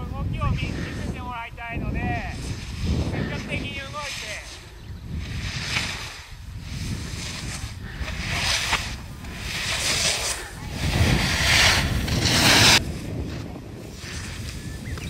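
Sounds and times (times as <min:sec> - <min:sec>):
snowboard carving through snow: 0:00.0 - 0:15.0
wind rumble on microphone: 0:00.0 - 0:15.0.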